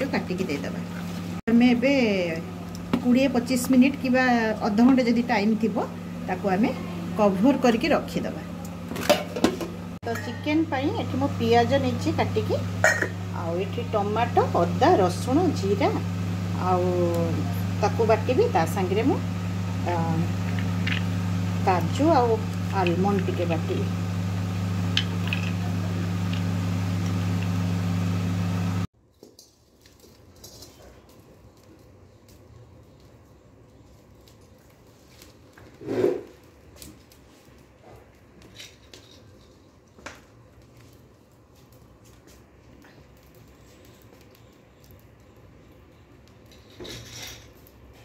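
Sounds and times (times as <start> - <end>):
low machine hum: 0.0 - 28.9
steel vessel scraping: 35.7 - 36.4.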